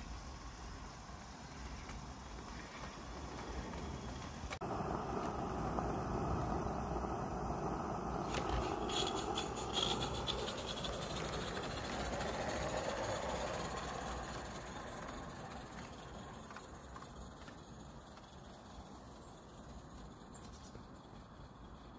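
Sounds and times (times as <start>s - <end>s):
wheels clicking on track: 0.0s - 21.9s.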